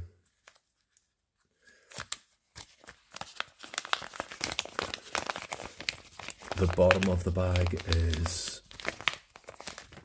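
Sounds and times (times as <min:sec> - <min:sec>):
plastic bag crinkling: 0:02.6 - 0:10.0.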